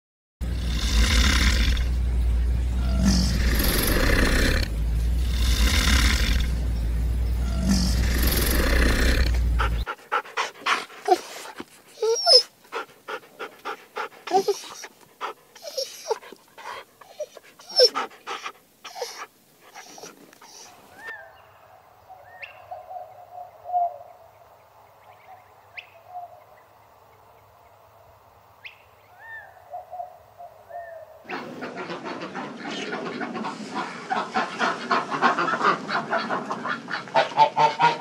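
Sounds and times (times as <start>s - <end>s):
animal breathing hard: 0.4s - 2.0s, 2.8s - 21.1s
low rumble: 0.4s - 9.9s
squeaky yelps: 12.0s - 12.5s, 15.6s - 16.2s, 17.1s - 18.0s.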